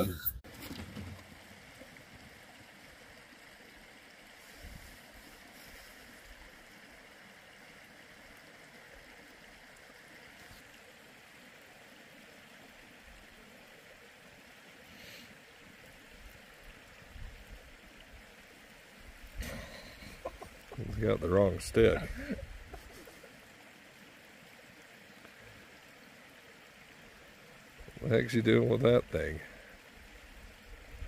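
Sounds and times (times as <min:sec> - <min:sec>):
creek babbling over gravel: 0:00.5 - 0:31.0.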